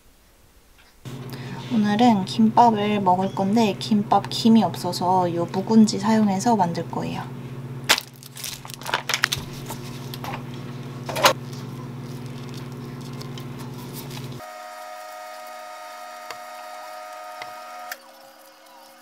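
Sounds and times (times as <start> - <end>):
machine hum: 0.0 - 19.0
plastic wrapping crinkling: 7.9 - 19.0.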